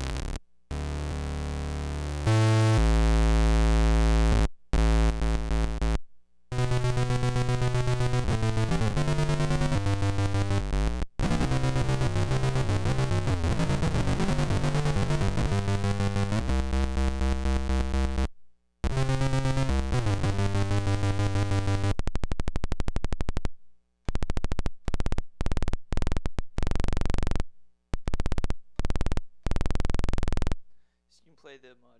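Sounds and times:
buzzy electric guitar effect tones: 0.0 - 23.4.

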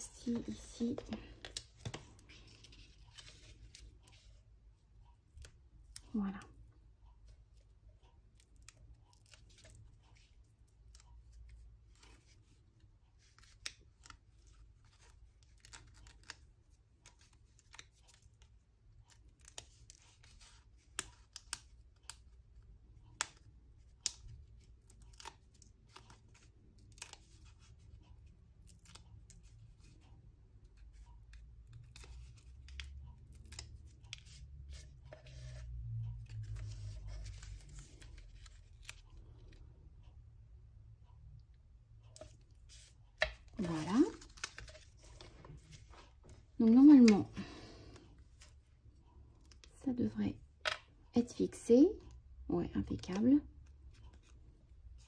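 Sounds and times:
adhesive dots being peeled: 0.2 - 6.7, 7.6 - 39.6, 42.0 - 48.6, 52.9 - 55.0
paper rustling: 30.8 - 39.6, 42.2 - 46.5.

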